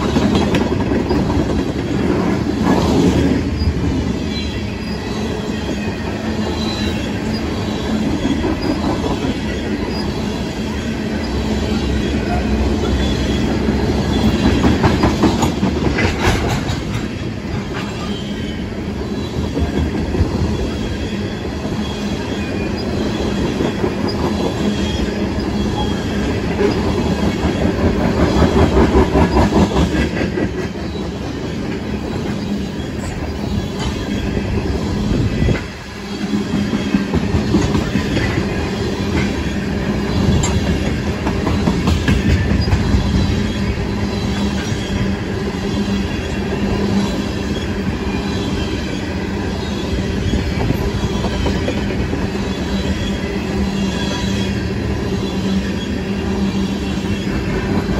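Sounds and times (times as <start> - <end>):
wheels clacking over rail joints: 0.0 - 18.4, 35.3 - 54.6
train wheels rumbling on rail: 0.0 - 57.9
wheel squeal: 3.6 - 15.5, 20.6 - 27.4.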